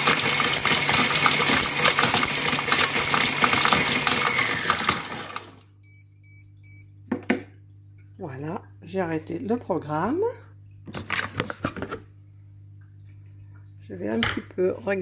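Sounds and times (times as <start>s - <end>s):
blender blade whirring rattle: 0.0s - 5.6s
short electronic beeps: 5.8s - 7.5s.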